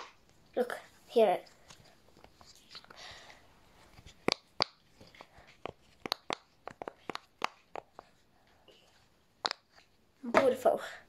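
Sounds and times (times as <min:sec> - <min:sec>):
pop-it fidget toy popping: 0:06.0 - 0:07.9.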